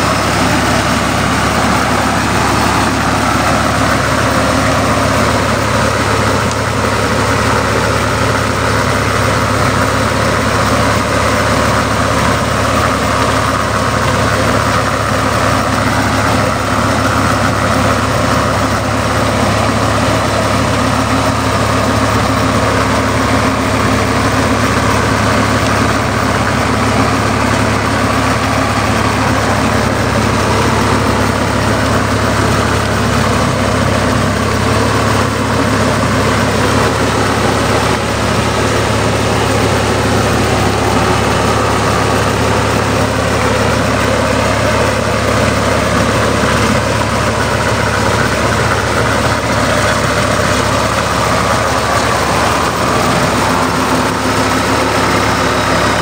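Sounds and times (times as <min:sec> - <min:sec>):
tractor diesel engine under load: 0:00.0 - 0:56.0.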